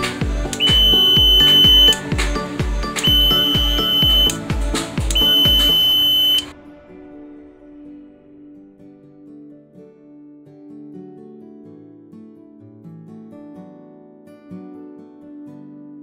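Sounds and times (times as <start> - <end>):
electronic music with beat: 0.0 - 6.6
piezo buzzer beeps: 0.6 - 2.1, 3.0 - 4.4, 5.1 - 6.5.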